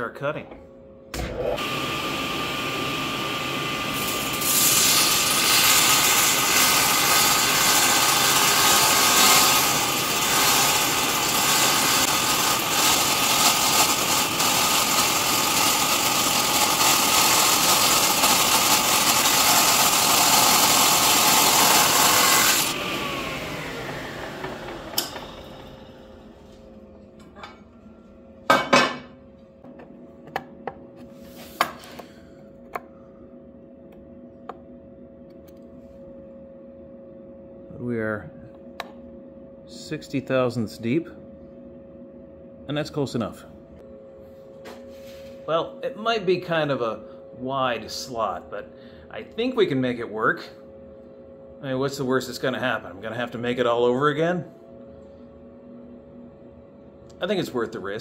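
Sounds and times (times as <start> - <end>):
table saw cutting metal: 1.2 - 26.0
saw motor spinning down: 1.2 - 26.3.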